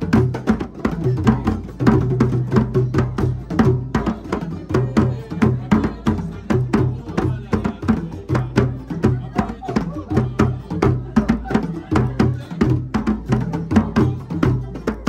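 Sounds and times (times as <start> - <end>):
group hand drumming: 0.0 - 15.0.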